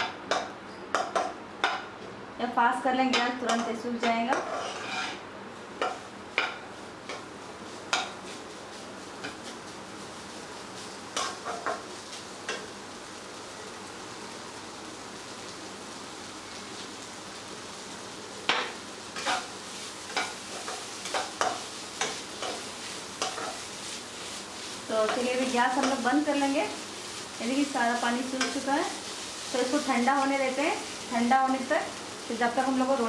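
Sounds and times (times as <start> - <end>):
spatula scraping a pan: 4.1 - 5.2, 18.6 - 31.0
meat sizzling in a pan: 4.3 - 33.0.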